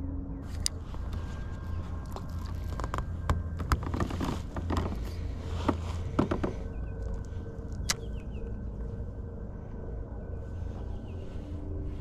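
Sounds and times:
steady low rumble: 0.0s - 12.0s
fishing gear clicking and knocking: 2.0s - 8.0s.

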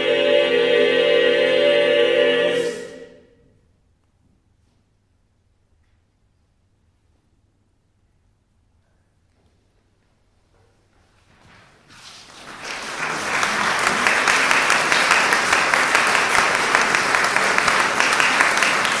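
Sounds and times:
audience applauding: 12.2s - 19.0s.

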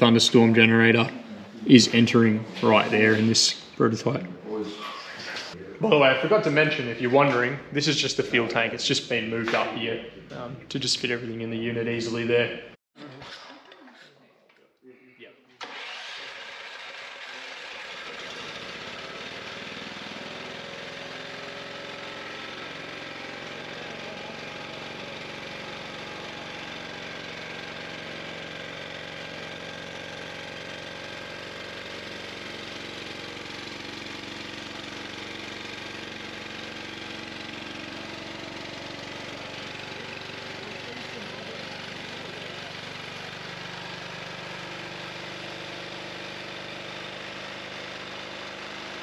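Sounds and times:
engine idling: 15.6s - 49.0s.

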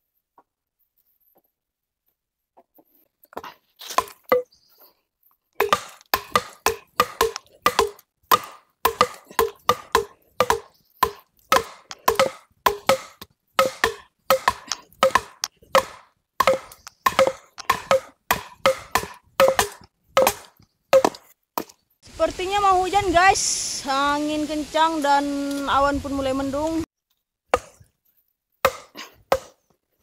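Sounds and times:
hand tool knocking on wooden post: 5.6s - 21.7s.

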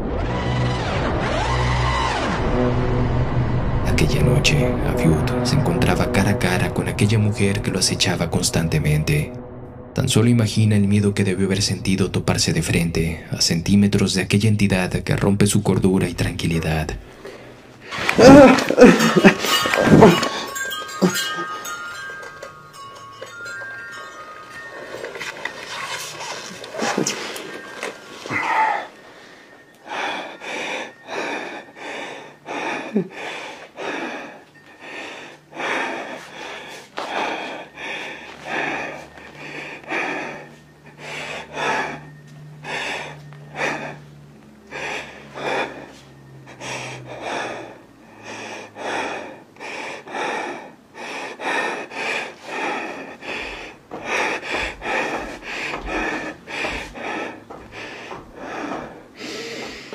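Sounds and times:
person panting: 25.8s - 59.9s.

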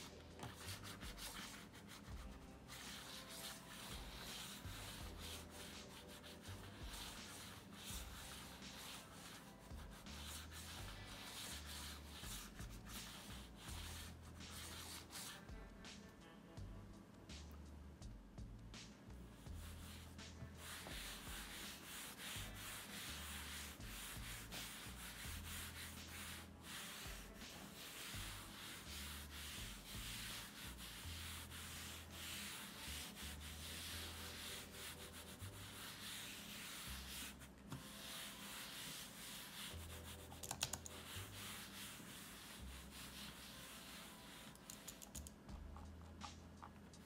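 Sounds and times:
mouse sliding on desk pad: 19.7s - 45.0s.

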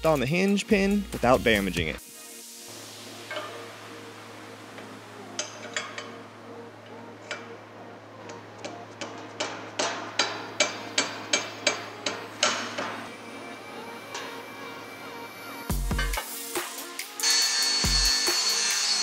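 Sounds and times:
hammer striking steel pin: 9.0s - 13.0s.

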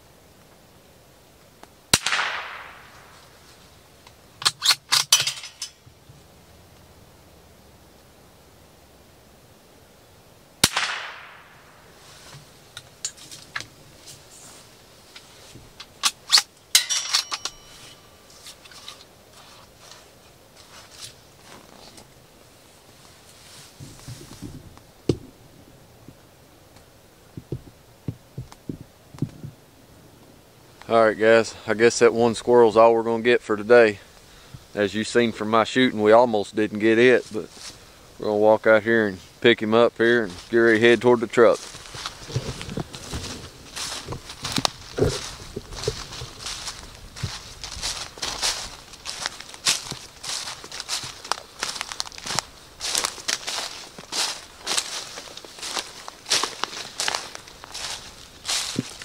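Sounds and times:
rifle shot: 1.9s - 3.1s, 10.6s - 11.7s.

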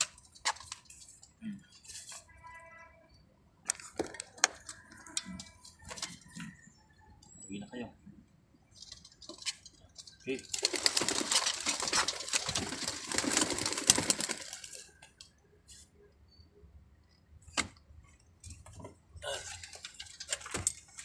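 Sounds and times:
pigeon basket rattling: 8.8s - 15.0s.

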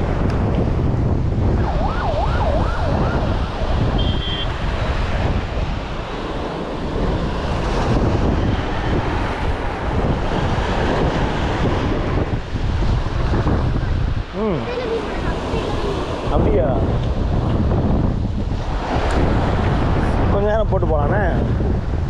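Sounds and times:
surf: 0.0s - 22.0s
wind buffeting microphone: 0.0s - 22.0s
short high beep: 4.0s - 4.5s.

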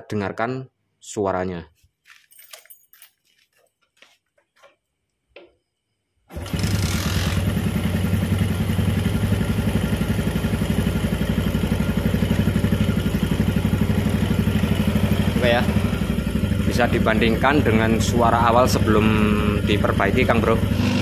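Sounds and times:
motorcycle engine starting and idling: 6.3s - 21.0s.

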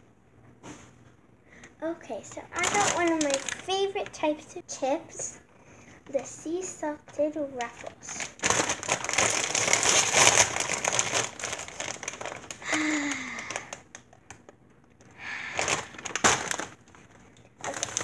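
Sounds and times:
chip bag crinkling: 2.4s - 4.2s, 7.6s - 14.6s, 15.2s - 18.0s.

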